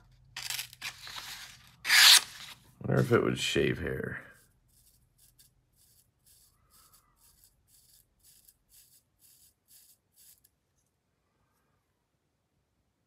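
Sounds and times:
knife blade scraping hair: 0.4s - 2.6s.

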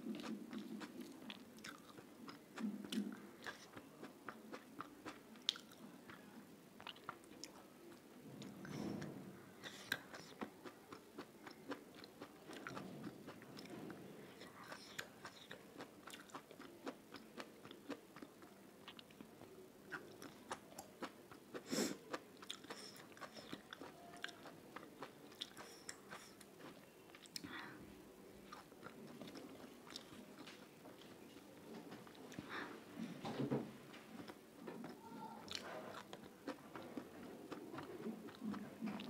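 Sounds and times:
person chewing food: 0.0s - 8.6s, 9.6s - 27.7s, 28.3s - 32.7s, 33.9s - 39.0s.

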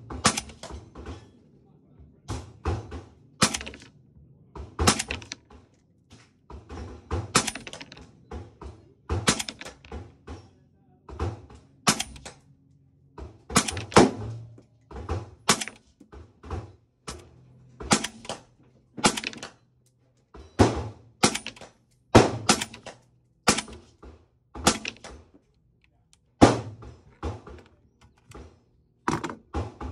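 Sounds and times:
suppressed rifle shots: 0.2s - 0.7s, 3.4s - 3.9s, 4.8s - 5.4s, 7.2s - 7.9s, 9.2s - 9.7s, 11.8s - 12.3s, 15.5s - 15.8s, 17.8s - 19.5s, 20.6s - 23.8s, 24.6s - 25.1s.

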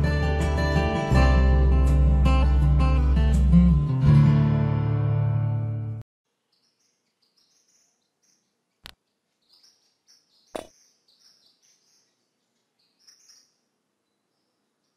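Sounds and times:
acoustic guitar music: 0.0s - 6.0s
birds chirping: 6.4s - 14.9s.

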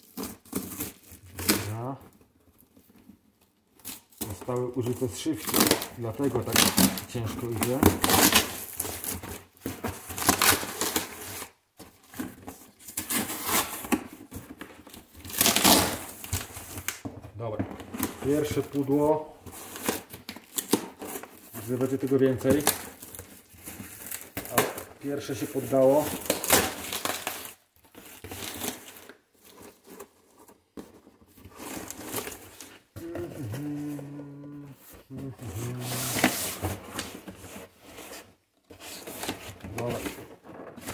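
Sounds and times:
cardboard and paper rustling: 0.0s - 40.9s
cardboard box being ripped: 7.6s - 9.2s, 15.2s - 16.5s, 26.1s - 29.1s, 34.8s - 38.3s.

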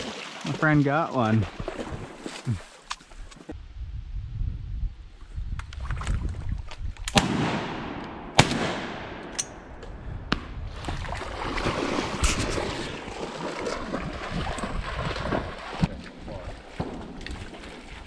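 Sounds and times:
loud shotgun shots echoing: 7.1s - 10.4s.

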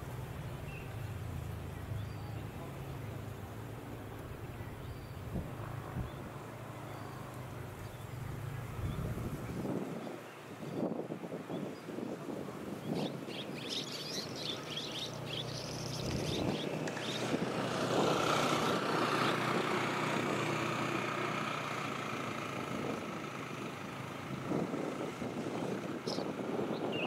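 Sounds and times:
distant engine humming: 0.0s - 9.8s
birds chirping: 0.0s - 21.4s, 22.1s - 27.0s.

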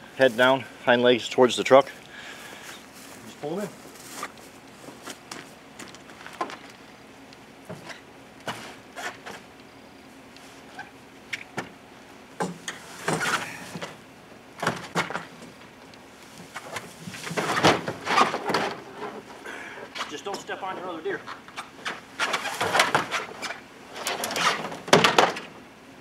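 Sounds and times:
metal cart scraping against truck: 12.7s - 13.9s, 16.8s - 19.4s, 21.8s - 24.9s.

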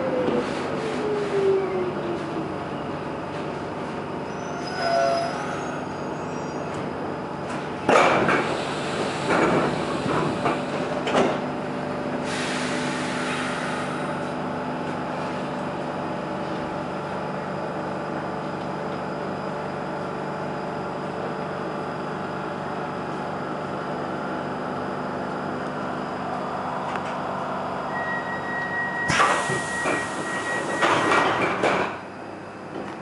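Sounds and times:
train humming: 0.0s - 4.4s, 6.7s - 20.6s, 21.3s - 33.0s
train knocks and clunks: 6.7s - 12.1s, 29.0s - 32.1s.

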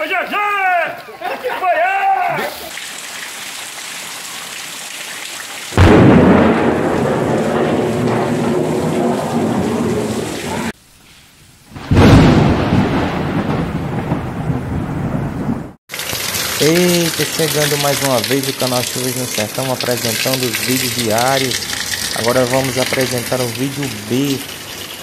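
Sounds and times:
heavy rain: 2.3s - 10.8s, 11.5s - 25.0s
thunder crashing and rumbling: 5.8s - 10.8s, 11.8s - 15.8s.

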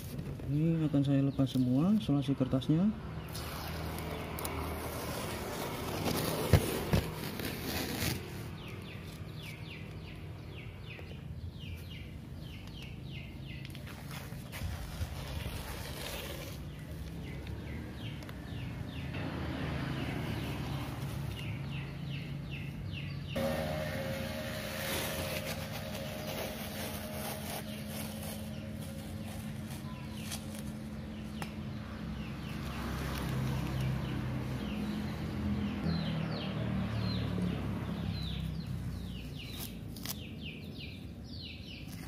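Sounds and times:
masking tape being peeled off: 3.3s - 8.5s, 14.2s - 17.1s, 24.2s - 30.8s, 39.5s - 40.3s
steady low hum: 23.4s - 29.8s.

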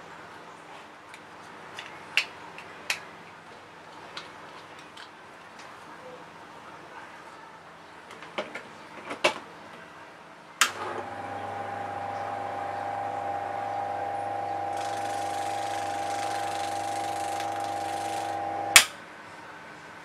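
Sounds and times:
washing machine motor humming: 10.7s - 18.8s.

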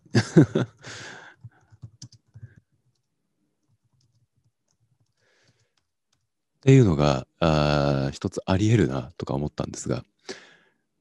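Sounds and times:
short breath: 0.8s - 1.4s, 10.2s - 10.8s
typing on computer keyboard: 1.4s - 6.3s
man's voice: 6.7s - 10.0s.

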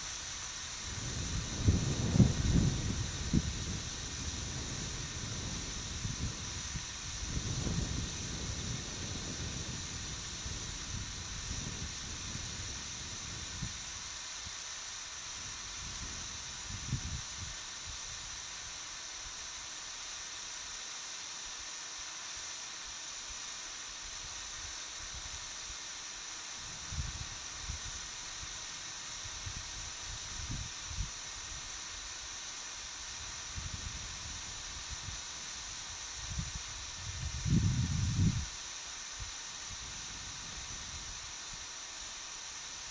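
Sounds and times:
steady high hiss: 0.0s - 42.9s
wind buffeting microphone: 0.8s - 13.8s, 36.3s - 38.5s.

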